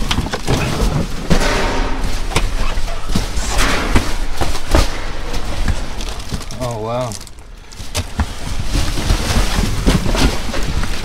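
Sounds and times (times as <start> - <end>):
boxes thudding in a dumpster: 0.0 - 7.1
cardboard and plastic rustling: 0.0 - 11.0.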